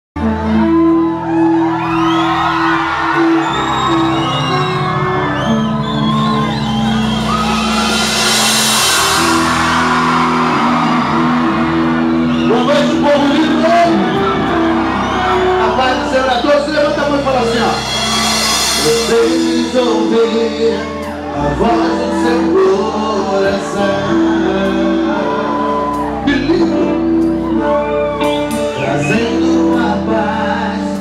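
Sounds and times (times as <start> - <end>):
crowd screaming and cheering: 0.2 - 31.0
live band holding chords: 0.2 - 31.0
drum strikes: 7.1 - 11.6, 17.2 - 20.5
cymbal wash: 17.5 - 20.1.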